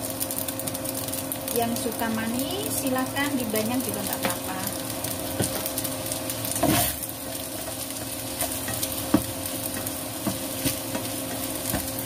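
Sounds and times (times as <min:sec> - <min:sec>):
rice sizzling in a wok: 0:00.0 - 0:12.0
spatula scraping through rice: 0:06.4 - 0:12.0
spatula knocking on pan: 0:08.4 - 0:12.0.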